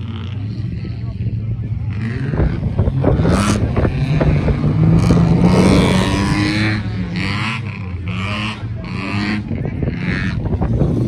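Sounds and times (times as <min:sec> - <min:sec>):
vehicle engine at low revs: 0:00.0 - 0:11.0.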